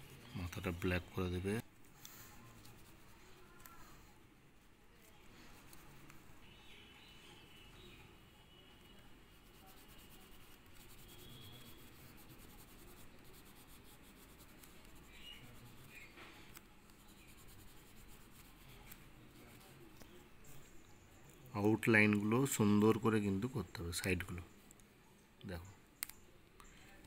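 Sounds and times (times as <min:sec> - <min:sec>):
pastel stick rubbing on paper: 0:02.3 - 0:03.8, 0:05.3 - 0:06.4, 0:09.3 - 0:19.8.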